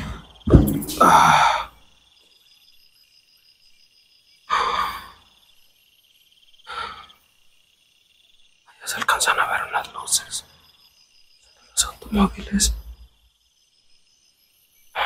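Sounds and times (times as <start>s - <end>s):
man breathing out heavily: 0.0s - 1.8s, 4.5s - 5.2s, 6.7s - 7.1s
high-pitched insect trill: 0.0s - 15.0s.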